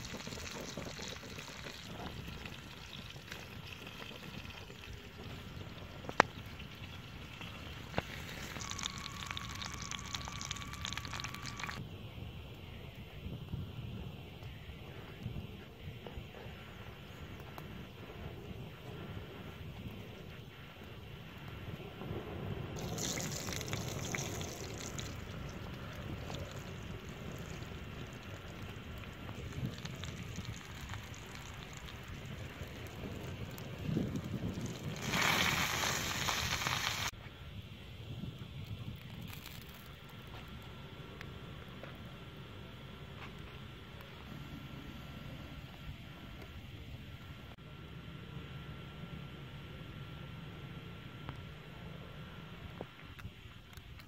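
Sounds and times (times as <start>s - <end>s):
wood fire crackling: 0.0s - 11.8s, 22.8s - 37.2s
meat sizzling on hot stone: 34.0s - 37.1s.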